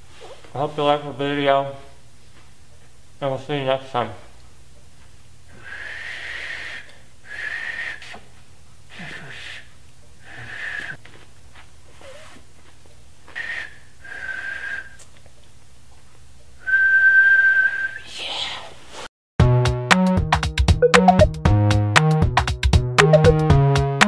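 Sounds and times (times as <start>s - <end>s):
man whistling: 5.6s - 8.2s, 13.4s - 15.0s, 16.6s - 18.1s.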